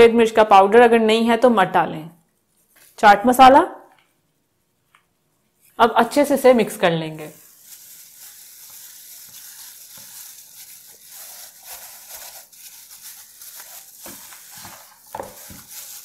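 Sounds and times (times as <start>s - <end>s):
plastic gloves crinkling rustle: 5.5s - 16.0s.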